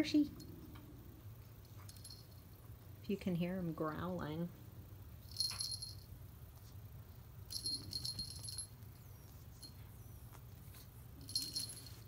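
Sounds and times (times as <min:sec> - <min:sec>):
small bell jingling: 0:01.6 - 0:02.6, 0:05.2 - 0:06.1, 0:07.5 - 0:10.0, 0:10.7 - 0:12.0.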